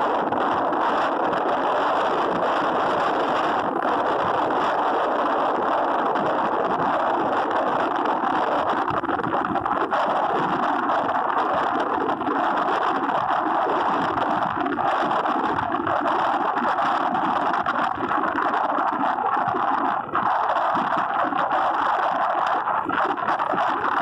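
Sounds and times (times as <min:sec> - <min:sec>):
road noise: 0:00.0 - 0:09.0
wind rushing over microphone: 0:00.0 - 0:24.0.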